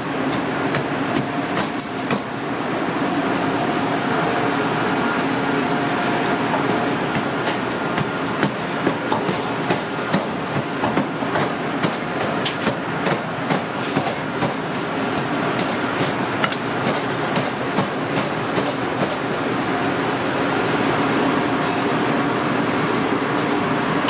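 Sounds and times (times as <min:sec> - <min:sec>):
steady background noise: 0:00.0 - 0:24.0.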